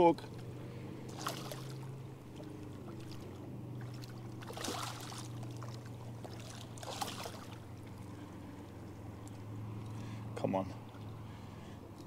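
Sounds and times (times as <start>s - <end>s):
steady low hum: 0.0s - 12.0s
fish splashing at water surface: 1.1s - 7.6s.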